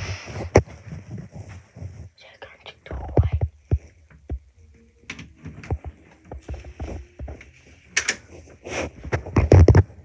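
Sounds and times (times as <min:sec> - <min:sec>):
fingers knocking on phone microphone: 0:03.1 - 0:04.5.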